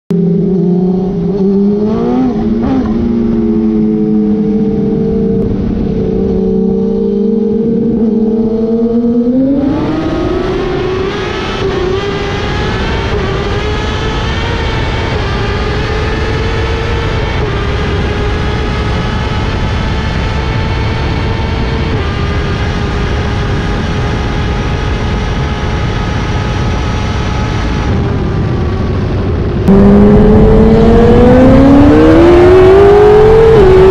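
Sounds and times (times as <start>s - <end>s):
road noise: 0.1s - 33.9s
vehicle engine revving high: 0.1s - 33.9s
wind rush: 1.1s - 22.2s, 23.4s - 33.9s.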